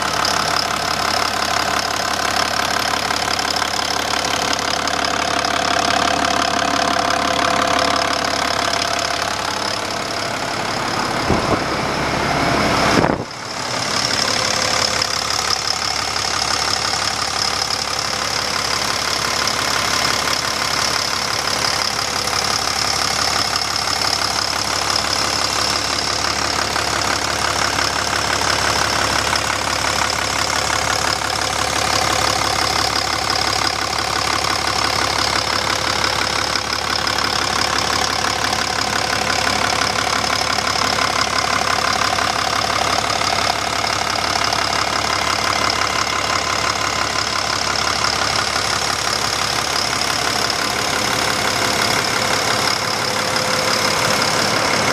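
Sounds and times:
diesel engine idling: 0.0s - 54.9s.

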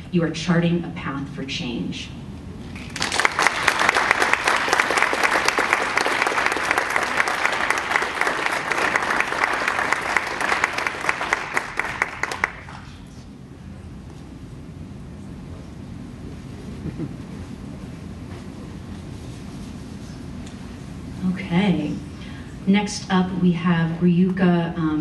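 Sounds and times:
audience applauding: 2.8s - 12.9s.

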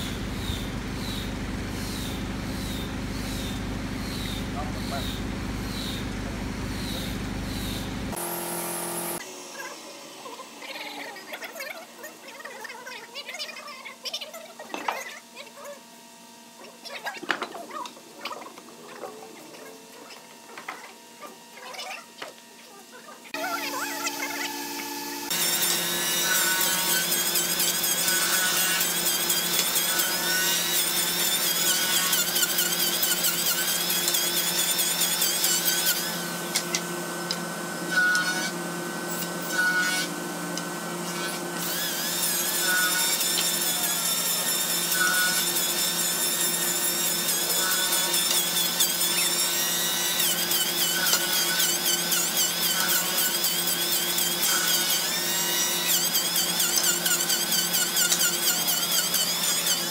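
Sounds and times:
steady low hum: 0.0s - 9.2s
electric hand planer whining: 0.0s - 11.9s, 23.2s - 59.9s.

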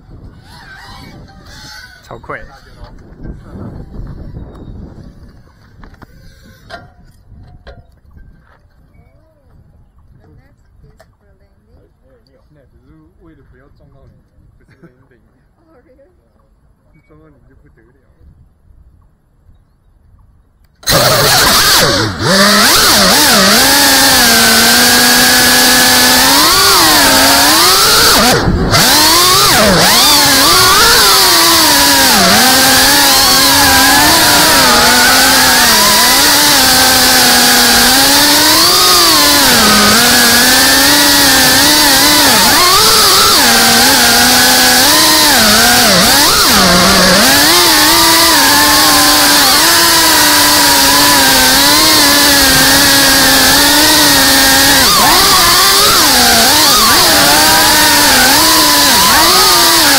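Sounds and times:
drone motors whining: 0.0s - 6.9s, 20.8s - 59.9s.

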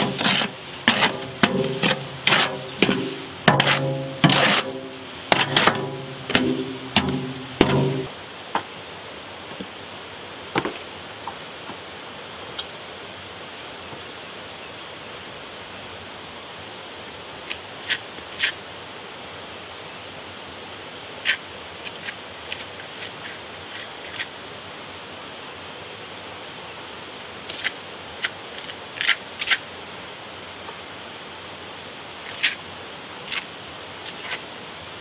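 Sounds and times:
trowel scraping mortar: 0.0s - 8.1s
background hiss: 0.0s - 35.0s.

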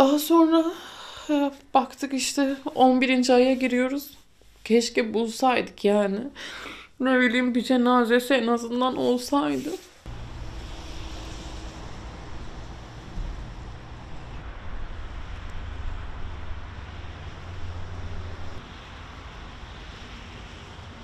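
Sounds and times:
low steady rumble: 10.1s - 21.0s.

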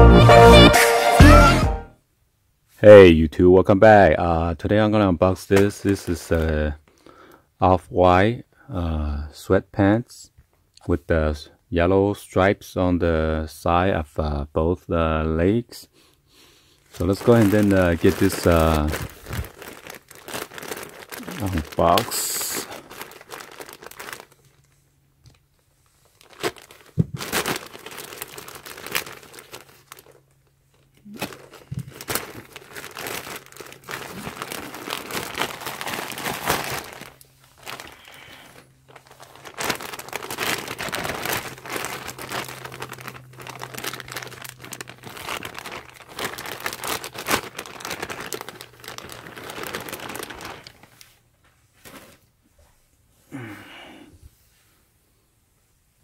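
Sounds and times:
plastic bag rustling: 5.5s - 6.6s, 16.9s - 24.8s, 25.9s - 52.4s
plastic mailer bag tearing: 5.5s - 6.6s, 16.9s - 24.7s, 26.2s - 51.0s.

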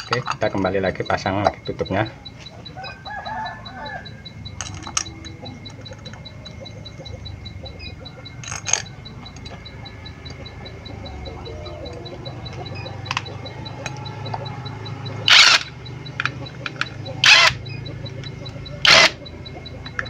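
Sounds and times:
faint high ticking: 0.0s - 20.0s
metallic clicks and taps: 4.4s - 20.0s.

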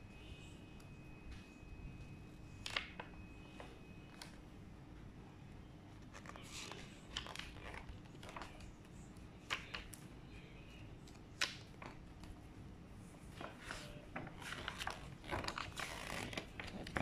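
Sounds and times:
paper rustling: 6.0s - 8.8s, 13.2s - 17.0s.

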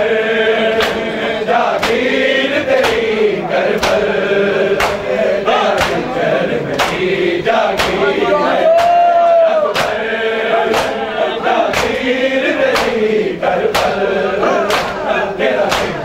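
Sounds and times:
men chanting a lament: 0.0s - 16.0s
hands slapping bare chests: 0.8s - 1.0s, 1.7s - 2.1s, 2.7s - 3.1s, 3.7s - 4.1s, 4.8s - 5.1s, 5.7s - 6.1s, 6.7s - 7.0s, 7.7s - 8.0s, 8.7s - 9.1s, 9.7s - 10.0s, 10.7s - 11.0s, 11.7s - 12.1s, 12.7s - 13.0s, 13.6s - 14.0s, 14.6s - 15.0s, 15.6s - 16.0s.

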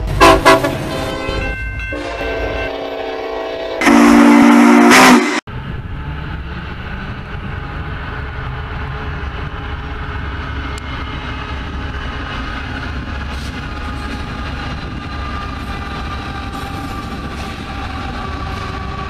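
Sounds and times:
diesel locomotives rumbling past: 0.0s - 19.0s
loud train horn: 0.1s - 5.5s.

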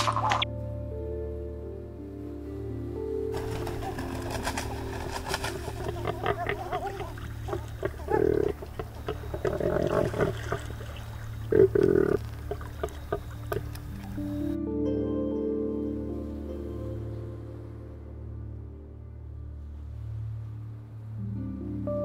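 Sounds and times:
pelicans grunting: 3.3s - 14.6s
clicks and soft calls: 3.4s - 14.6s.

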